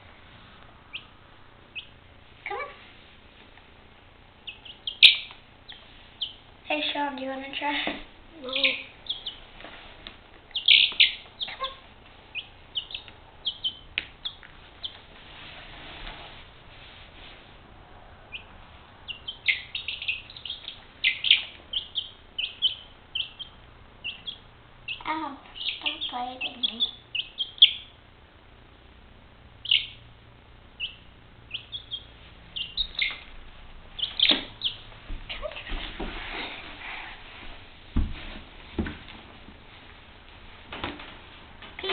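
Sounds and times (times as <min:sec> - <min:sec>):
chick peeping: 0:00.9 - 0:01.1, 0:01.7 - 0:02.7, 0:04.4 - 0:06.5, 0:08.4 - 0:09.5, 0:10.4 - 0:15.1, 0:18.3 - 0:28.0, 0:29.6 - 0:30.1, 0:30.8 - 0:35.9.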